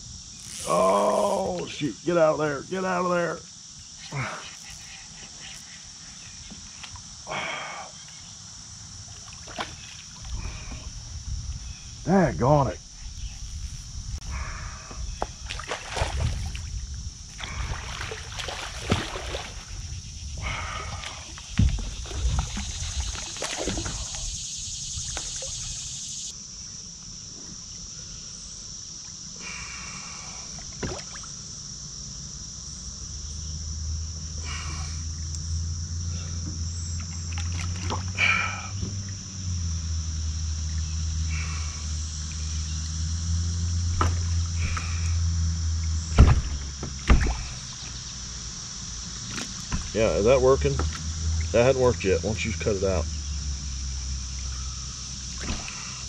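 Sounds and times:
water sloshing: 9.0 - 10.9, 15.5 - 19.9, 20.8 - 24.3, 37.0 - 38.2
knocks on kayak: 21.6 - 22.5, 46.1 - 47.4, 49.3 - 50.0
low motor hum: 32.8 - 56.0.

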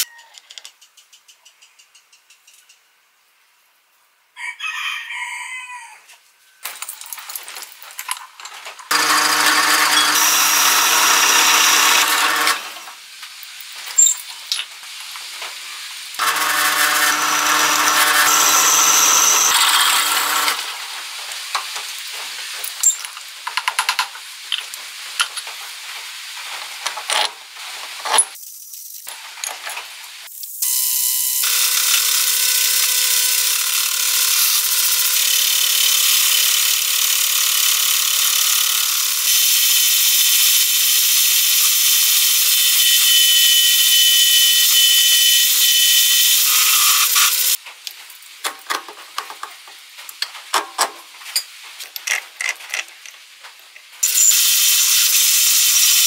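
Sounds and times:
steel parts clinking: 6.6 - 12.6, 13.3 - 14.8, 22.5 - 25.5, 50.1 - 54.2
drill press whining into steel: 8.9 - 12.8, 16.2 - 20.7, 41.7 - 47.6.

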